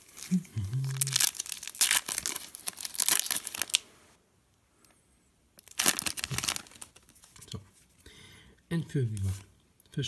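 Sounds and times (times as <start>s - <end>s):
foil wrapper tearing and crinkling: 0.9s - 3.8s, 5.6s - 7.2s.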